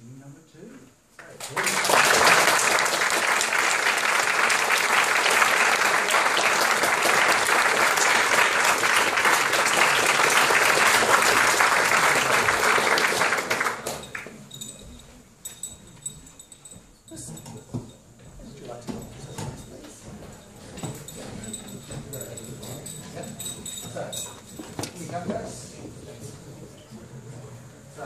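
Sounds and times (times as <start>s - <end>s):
audience applauding: 1.3s - 14.3s.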